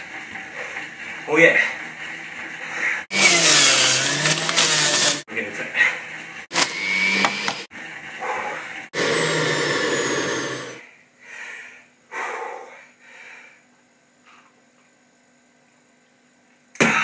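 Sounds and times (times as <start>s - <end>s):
electric juicer motor whirring: 3.1s - 5.2s, 6.2s - 8.1s, 8.9s - 10.8s.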